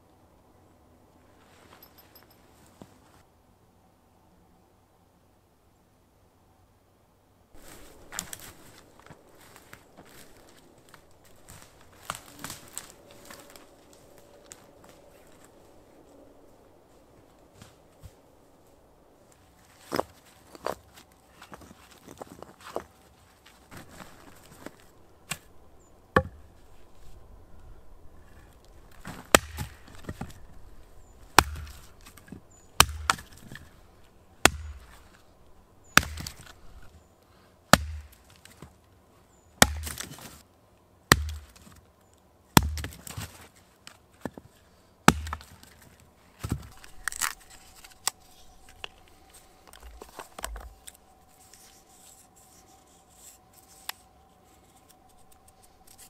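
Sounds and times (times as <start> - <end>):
axe chopping wood: 26.2 - 26.4, 29.0 - 30.4, 31.3 - 33.6, 34.4 - 35.1, 35.9 - 36.6, 37.7 - 38.3, 39.6 - 40.2, 41.1 - 41.6, 42.6 - 43.1, 45.1 - 45.7.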